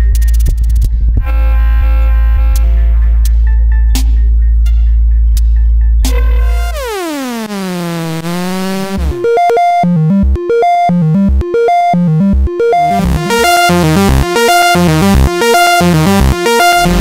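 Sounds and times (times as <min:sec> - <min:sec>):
staccato synth pattern: 0:06.1 - 0:17.0
synth held note: 0:06.2 - 0:09.3, 0:12.7 - 0:17.0.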